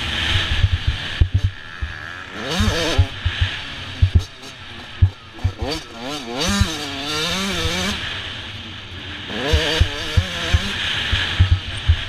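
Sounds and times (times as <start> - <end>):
wind noise: 0.0 - 4.4, 9.5 - 12.0
motocross bike engine revving: 0.0 - 12.0
knocks from rough track: 0.5 - 2.0, 2.6 - 4.3.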